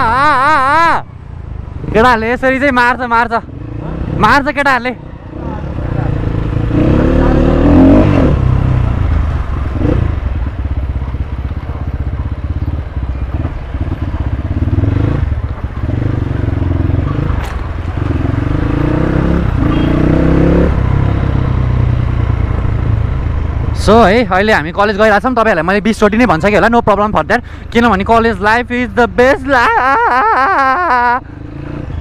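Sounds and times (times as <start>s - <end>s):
dirt bike engine revving: 5.2s - 10.3s, 13.4s - 23.1s.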